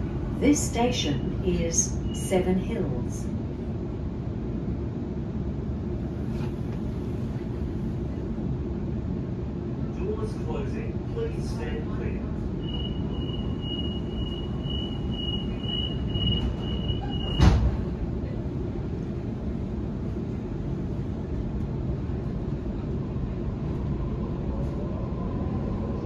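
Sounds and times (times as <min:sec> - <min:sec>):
train carriage low rumble: 0:00.0 - 0:26.0
train door warning beeps: 0:12.6 - 0:17.8
train doors shutting thud: 0:16.2 - 0:18.0.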